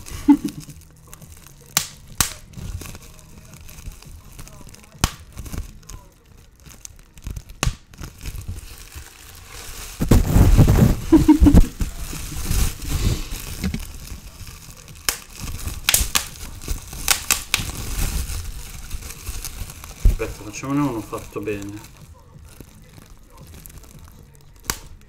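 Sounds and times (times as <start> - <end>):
plastic packaging crinkling: 0.0 - 25.0.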